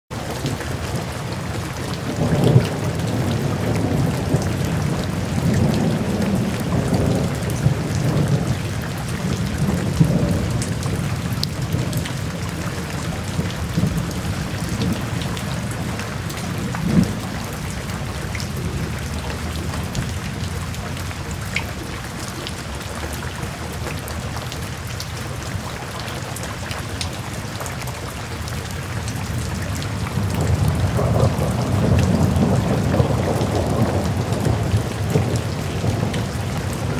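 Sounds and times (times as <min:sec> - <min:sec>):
steady rain: 0:00.1 - 0:36.9
rolling thunder: 0:00.6 - 0:21.9, 0:29.4 - 0:36.9.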